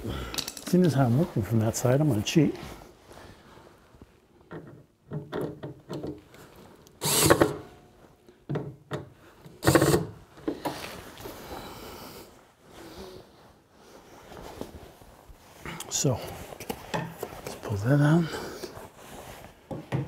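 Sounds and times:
cordless drill driving screws: 0:07.0 - 0:07.6, 0:09.6 - 0:10.1
handling and scraping: 0:12.7 - 0:20.0.

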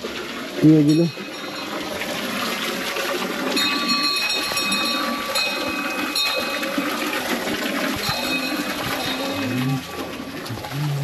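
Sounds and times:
water running: 0:00.0 - 0:11.0
high ringing tones: 0:03.5 - 0:07.2, 0:08.0 - 0:10.1.

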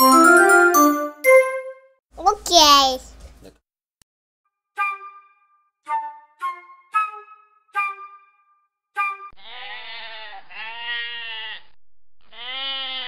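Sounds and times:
short musical notes: 0:00.0 - 0:02.0
sheep bleating: 0:09.4 - 0:13.0.

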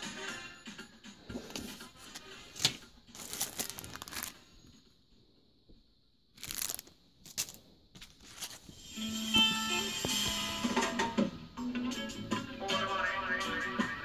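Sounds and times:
plastic packaging crinkling: 0:01.6 - 0:04.5, 0:06.4 - 0:08.7.

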